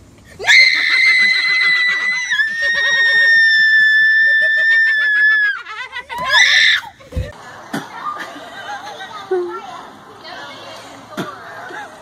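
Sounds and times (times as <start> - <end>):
woman screaming: 0.4 - 5.6
laughter: 0.7 - 9.6.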